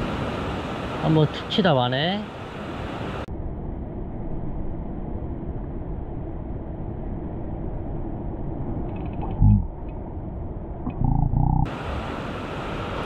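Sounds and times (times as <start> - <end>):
muffled surf rushing: 0.0 - 3.3, 11.7 - 13.0.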